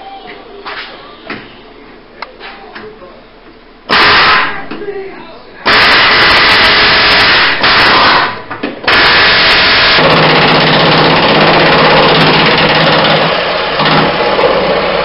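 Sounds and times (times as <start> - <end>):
pneumatic air tool on metal: 5.7 - 13.2.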